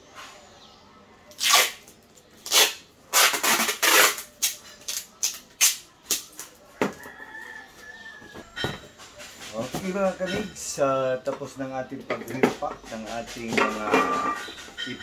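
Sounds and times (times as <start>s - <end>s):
packing tape ripping off roll: 1.3s - 6.5s.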